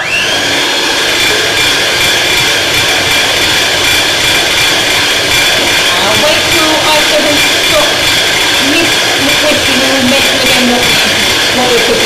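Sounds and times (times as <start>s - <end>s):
electric hand mixer whining: 0.0s - 12.0s.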